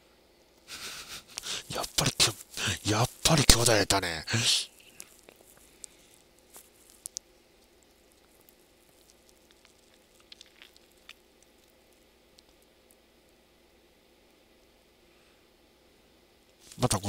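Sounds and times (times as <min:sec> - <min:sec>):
faint room hiss: 0:00.0 - 0:17.0.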